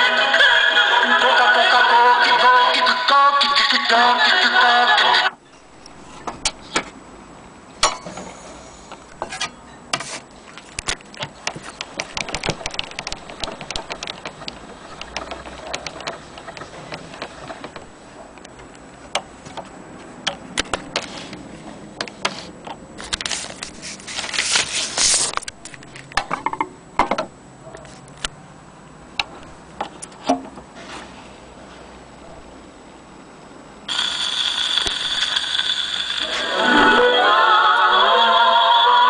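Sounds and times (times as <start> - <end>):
paper rustling: 22.3 - 25.5.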